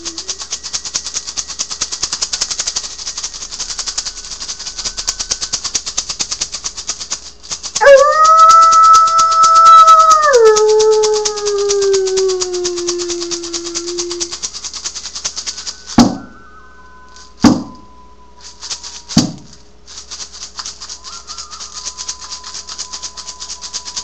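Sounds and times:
faint high tone: 0:00.0 - 0:00.8, 0:15.4 - 0:19.2
low held tone: 0:00.0 - 0:06.2, 0:07.8 - 0:19.7, 0:20.6 - 0:24.0
hand rattle shaking: 0:00.0 - 0:24.0
frame drum strikes: 0:15.9 - 0:16.4, 0:17.4 - 0:17.9.

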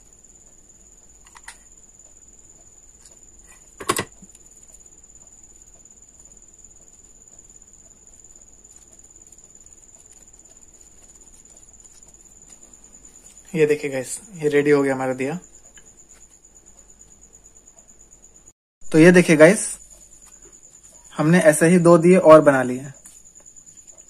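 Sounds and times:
steady high-pitched whine: 0:00.0 - 0:24.0.

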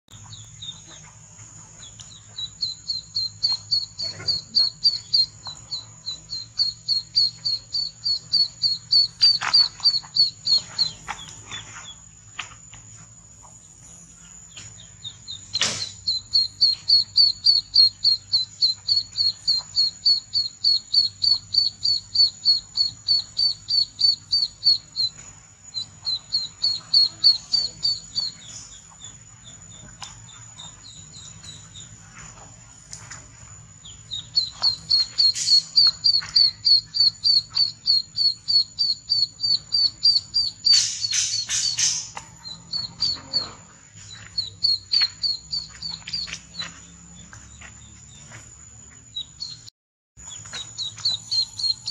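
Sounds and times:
ducklings peeping: 0:00.1 - 0:12.8, 0:13.4 - 0:51.9
sharp click: 0:15.5 - 0:16.0, 0:40.7 - 0:42.3.

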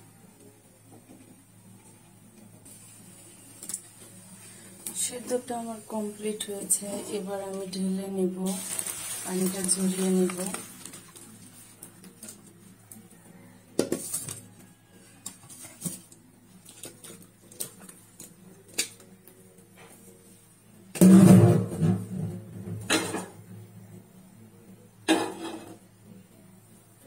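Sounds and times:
pots and bowls clattering: 0:13.7 - 0:14.5, 0:21.0 - 0:23.4, 0:25.1 - 0:25.8.

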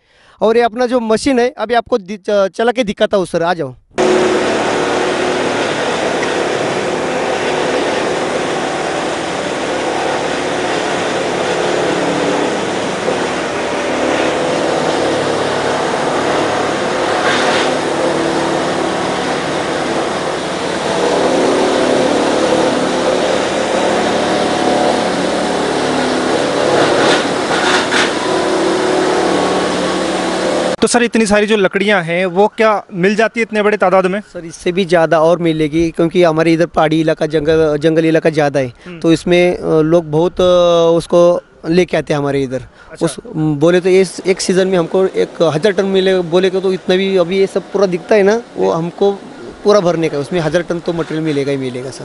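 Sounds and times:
sharp grinding noise: 0:04.0 - 0:30.8
wood crusher grinding logs: 0:04.0 - 0:30.8.

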